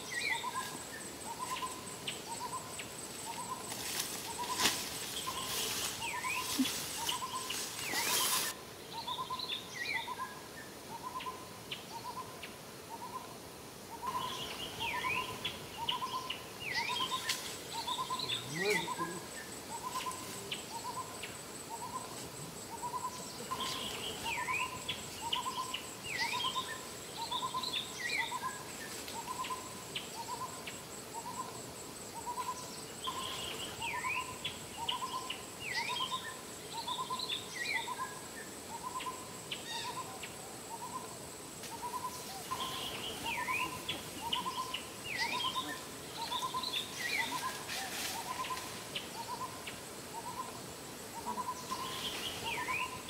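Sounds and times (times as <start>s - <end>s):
birds chirping: 0.0s - 10.2s, 13.9s - 41.1s, 41.8s - 50.6s, 51.2s - 53.0s
high insect whine: 0.0s - 53.0s.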